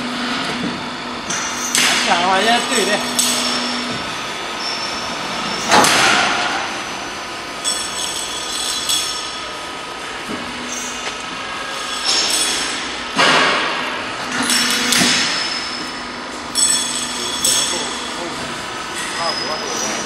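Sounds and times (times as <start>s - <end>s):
roll forming machine running: 0.0s - 20.0s
light metallic clinks: 7.6s - 9.5s, 16.5s - 18.3s.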